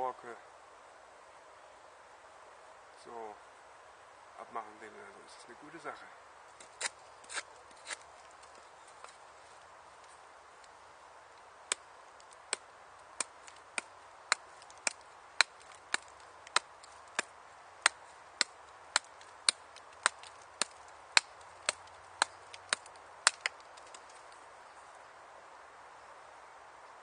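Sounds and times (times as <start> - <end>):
knife chopping branch: 6.7 - 8.0, 12.5 - 24.2.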